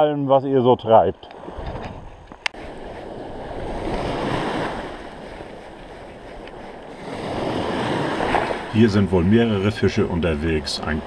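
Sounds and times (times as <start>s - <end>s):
wind rumbling on microphone: 0.8s - 11.0s
small waves washing in shallows: 2.6s - 11.0s.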